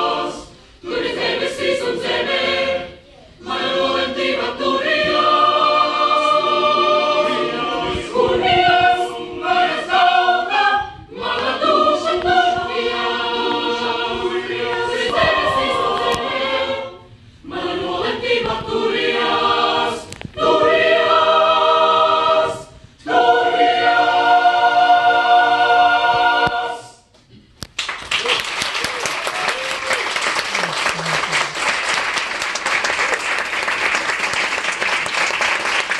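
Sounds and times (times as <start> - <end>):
mixed choir singing: 0.0 - 27.1.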